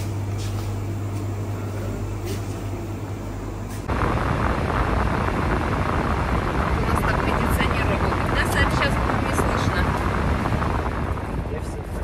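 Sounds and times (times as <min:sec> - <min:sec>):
low hum: 0:03.0 - 0:12.0
rushing noise: 0:03.9 - 0:12.0.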